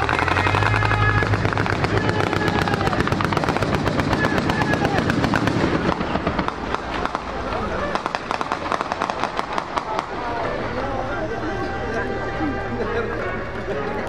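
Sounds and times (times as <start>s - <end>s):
rapid gunfire: 0.0s - 10.2s
vehicle engine hum: 0.0s - 14.0s.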